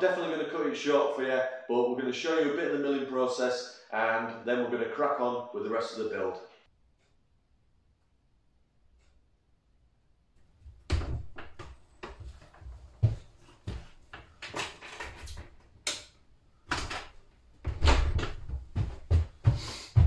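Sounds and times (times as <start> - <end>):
heavy footsteps on floor: 10.7 - 14.4, 17.6 - 20.0
door opening and shutting: 10.8 - 12.2, 14.4 - 18.6.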